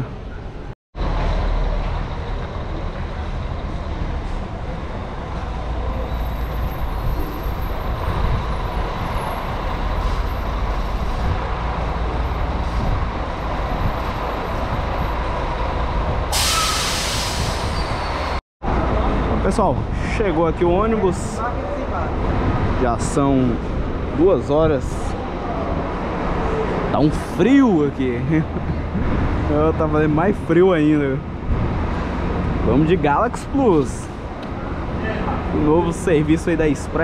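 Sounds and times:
air brake hiss: 0:16.3 - 0:18.0.

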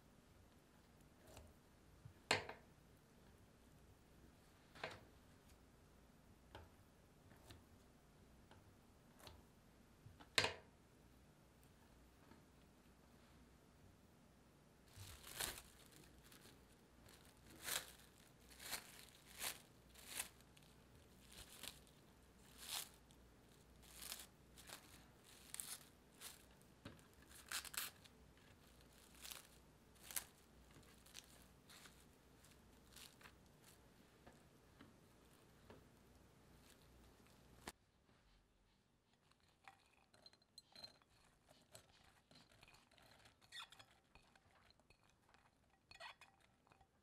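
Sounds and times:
plastic cling wrap crinkling: 0:14.9 - 0:33.8, 0:36.5 - 0:37.8.

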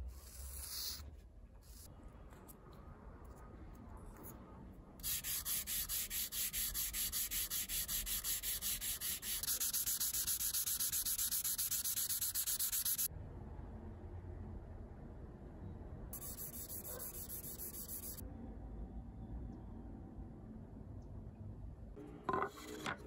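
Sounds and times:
sandpaper rubbing on metal: 0:05.0 - 0:13.1, 0:16.2 - 0:18.2.

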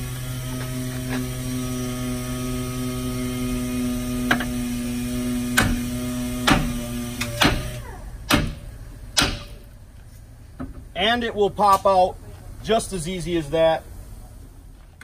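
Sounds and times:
steady hum: 0:00.0 - 0:15.0
hammer striking steel: 0:08.3 - 0:09.7.

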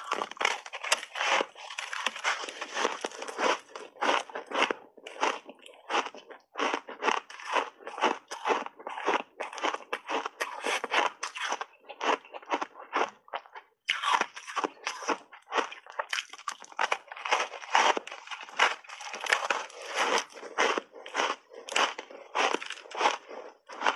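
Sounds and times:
ice being crunched and chewed: 0:00.0 - 0:23.9.

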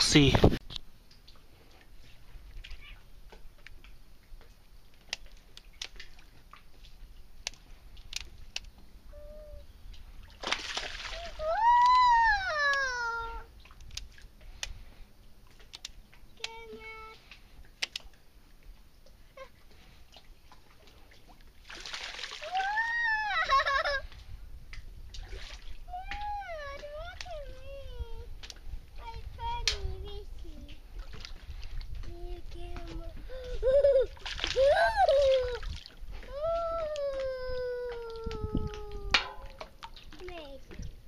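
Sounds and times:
fish splashing in water: 0:10.2 - 0:12.7, 0:20.0 - 0:23.0, 0:25.1 - 0:26.2, 0:34.2 - 0:36.1
faint clicks and ticks: 0:13.7 - 0:18.2, 0:28.4 - 0:30.8.

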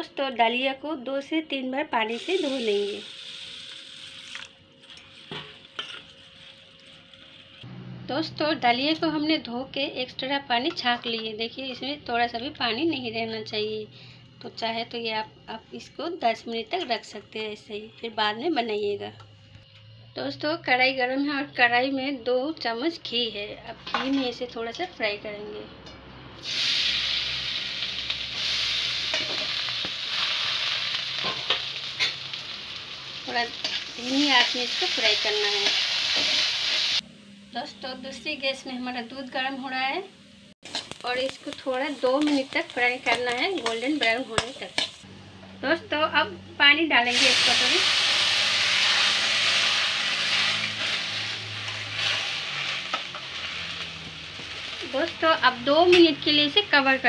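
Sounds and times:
wheat sizzling in hot ghee: 0:02.0 - 0:07.7, 0:26.4 - 0:40.0, 0:40.6 - 0:45.1, 0:47.0 - 0:57.0
steel spatula stirring: 0:33.3 - 0:37.0, 0:41.7 - 0:45.0.

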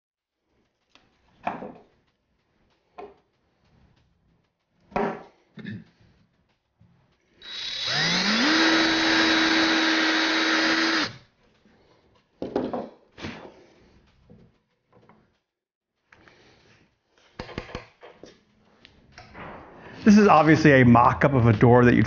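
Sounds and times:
cordless drill boring into wood: 0:07.4 - 0:11.2.

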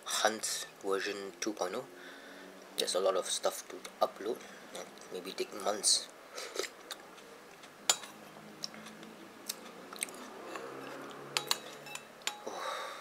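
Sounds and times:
person chewing food: 0:06.4 - 0:11.5.

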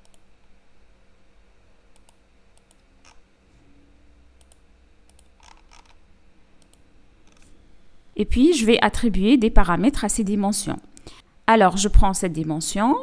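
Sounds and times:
computer mouse clicks: 0:00.0 - 0:00.2, 0:01.9 - 0:03.2, 0:04.4 - 0:06.0, 0:06.6 - 0:07.5
faint steady hum: 0:00.0 - 0:13.0.

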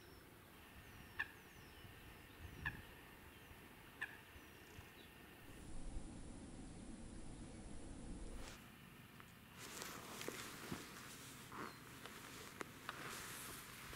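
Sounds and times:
faint high bird chirps: 0:00.0 - 0:05.3.

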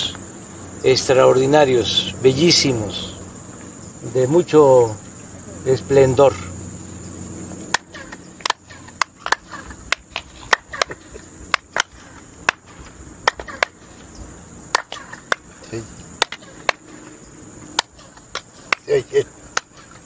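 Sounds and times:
chirping echo: 0:00.0 - 0:20.0
insect drone: 0:00.0 - 0:20.0
hand claps: 0:07.7 - 0:13.8, 0:14.7 - 0:15.4, 0:16.2 - 0:16.9, 0:17.8 - 0:19.9.

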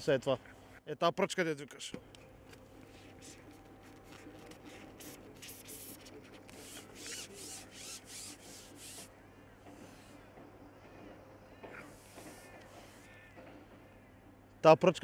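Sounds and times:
short scratchy rubbing strokes: 0:04.1 - 0:09.1, 0:11.8 - 0:13.1.

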